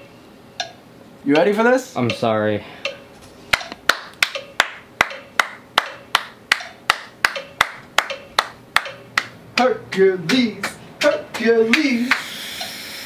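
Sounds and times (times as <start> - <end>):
hand claps in steady beat: 3.5 - 12.3.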